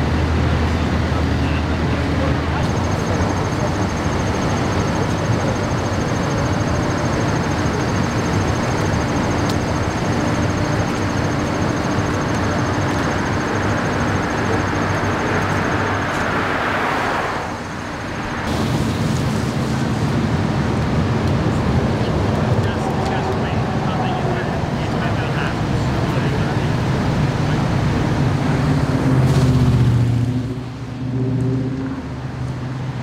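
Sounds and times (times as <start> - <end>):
highway traffic rumble: 0.0 - 33.0
idling engines: 0.0 - 33.0
passing car tyre noise: 11.6 - 33.0.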